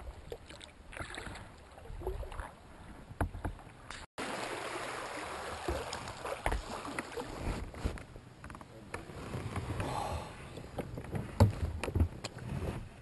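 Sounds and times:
paddle splashing and dripping: 0:00.0 - 0:07.5.

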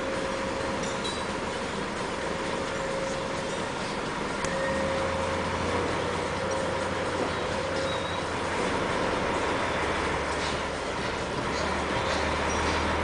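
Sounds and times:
truck diesel engine drone: 0:00.0 - 0:13.0.

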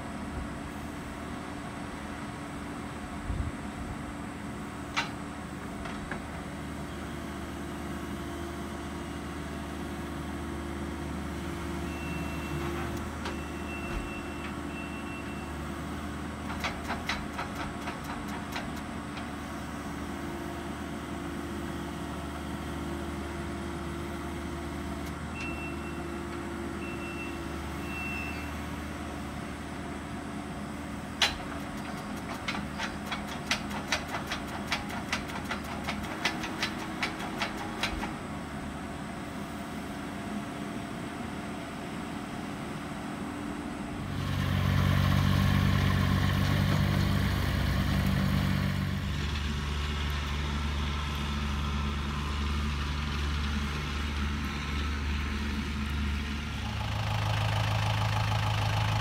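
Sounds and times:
diesel engine running: 0:00.0 - 0:59.0
backup alarm beeps: 0:11.9 - 0:12.6, 0:13.3 - 0:15.6, 0:25.4 - 0:26.1, 0:26.8 - 0:28.5
clicking and clanking: 0:16.4 - 0:19.3, 0:31.2 - 0:38.2.

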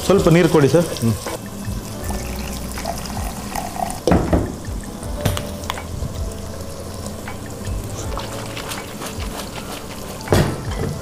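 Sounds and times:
spices sizzling in oil: 0:00.0 - 0:11.0.

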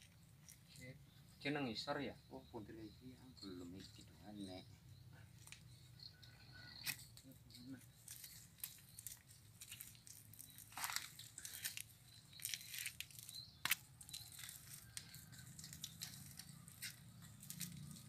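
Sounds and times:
straw and mud rustling on wheels: 0:07.3 - 0:18.0.

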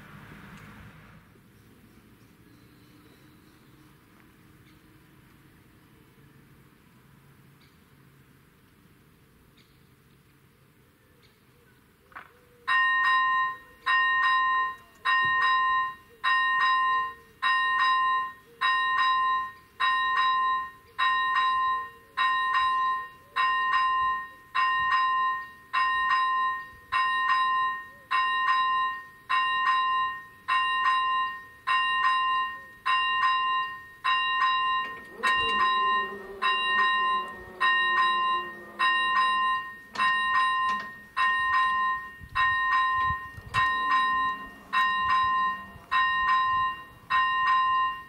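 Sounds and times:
level crossing warning bell: 0:12.7 - 0:48.0.

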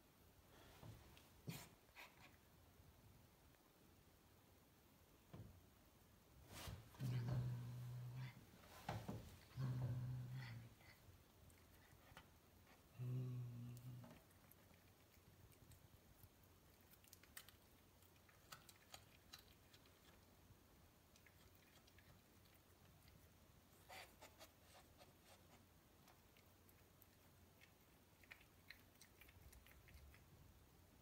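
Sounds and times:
cat chewing and crunching: 0:06.9 - 0:31.0.

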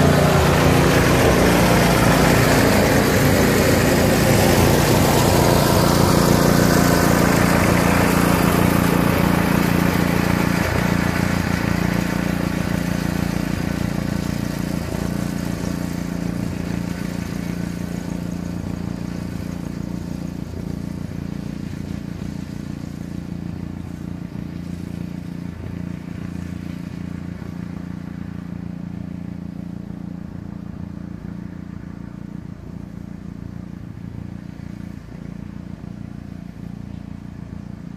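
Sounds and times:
mower running: 0:00.0 - 0:37.9
pickup truck engine drone: 0:00.0 - 0:37.9.

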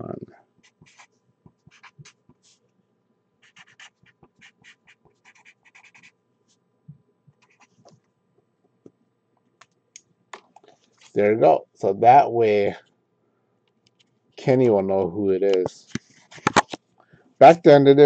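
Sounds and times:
pen scratching on paper: 0:00.6 - 0:02.6, 0:03.4 - 0:06.2, 0:07.4 - 0:07.8.

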